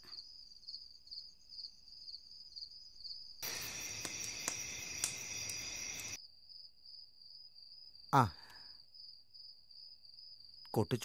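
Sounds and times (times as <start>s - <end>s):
crickets chirping: 0.0s - 11.0s
bonfire crackling and popping: 3.4s - 6.2s.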